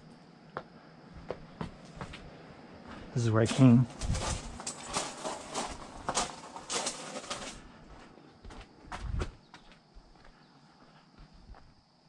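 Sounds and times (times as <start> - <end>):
footsteps crunching on gravel: 2.9 - 10.4.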